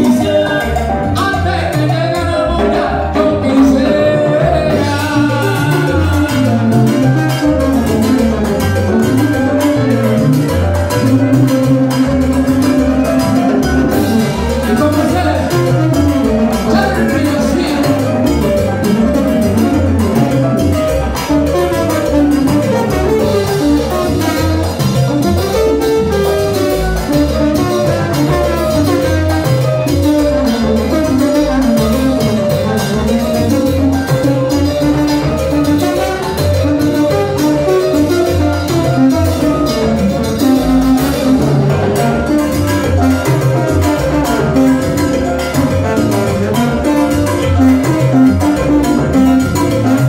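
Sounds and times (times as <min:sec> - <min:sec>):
congas and timbales: 0:00.0 - 0:50.0
live salsa band playing: 0:00.0 - 0:50.0
pulsing bass line: 0:00.0 - 0:50.0
trombone: 0:00.0 - 0:50.0.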